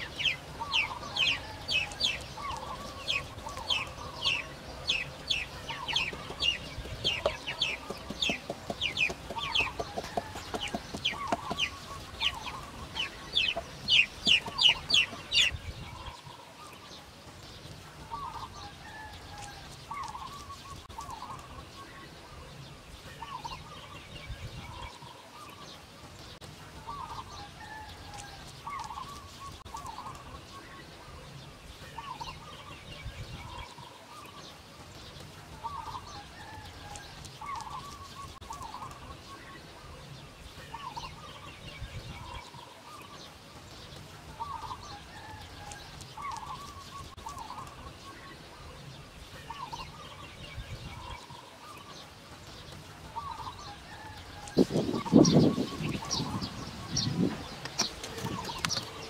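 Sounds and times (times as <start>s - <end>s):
chickens clucking: 0.0s - 16.4s, 53.0s - 59.0s.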